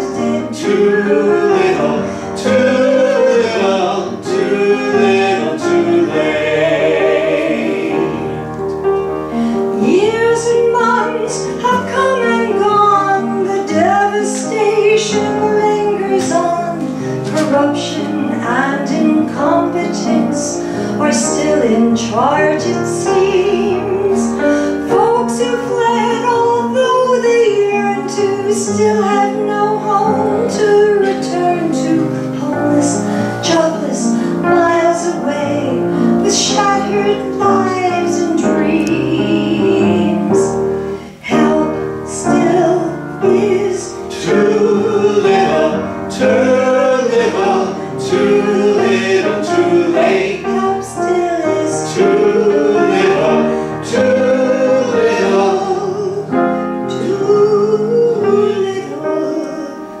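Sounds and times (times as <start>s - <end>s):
woman singing: 0.0s - 3.7s, 9.8s - 40.6s, 41.2s - 46.5s, 50.4s - 54.3s, 54.9s - 60.0s
men singing along: 0.4s - 8.4s, 43.3s - 50.9s, 51.5s - 56.3s.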